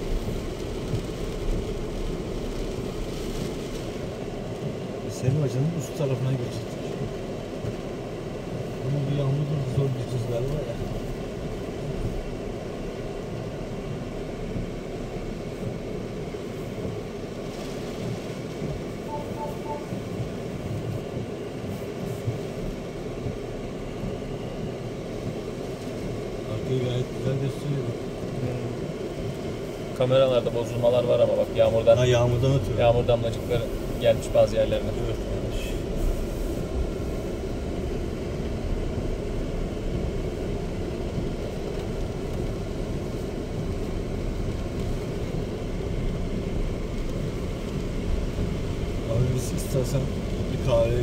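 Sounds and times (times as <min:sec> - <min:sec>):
engine rumble: 0:00.0 - 0:51.0
rain: 0:00.0 - 0:51.0
tyres on wet road: 0:00.0 - 0:51.0.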